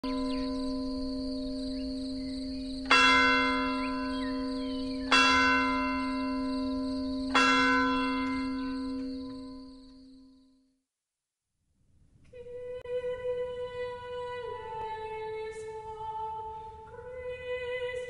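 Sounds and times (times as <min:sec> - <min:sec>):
church bell tolling: 0:00.0 - 0:10.4.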